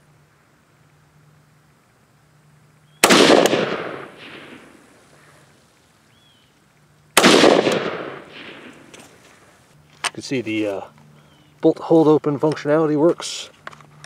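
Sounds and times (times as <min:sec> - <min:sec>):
rifle shots with echo: 0:03.0 - 0:05.0, 0:07.2 - 0:09.0.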